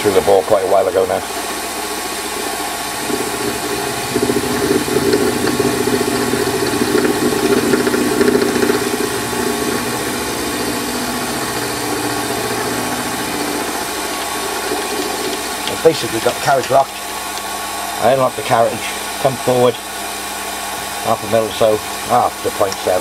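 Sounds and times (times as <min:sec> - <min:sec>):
lathe motor hum: 0:01.3 - 0:18.1
cutter grinding metal: 0:02.9 - 0:17.0.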